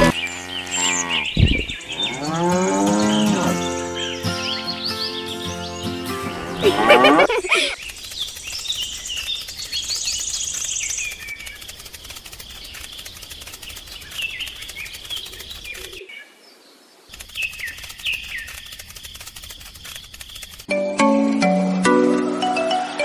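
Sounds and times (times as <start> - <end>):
small birds chirping: 0.0 - 6.8, 7.4 - 20.7
high buzzy bird trill: 0.0 - 16.0.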